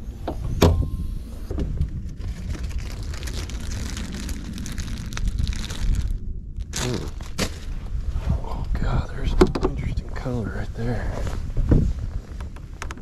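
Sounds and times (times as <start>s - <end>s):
steady low rumble: 0.0s - 13.0s
plastic bag crinkling: 1.9s - 7.7s.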